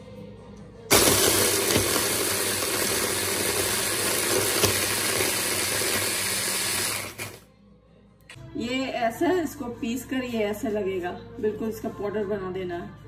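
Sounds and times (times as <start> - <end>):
hand blender grinding cookies: 0.9 - 7.4.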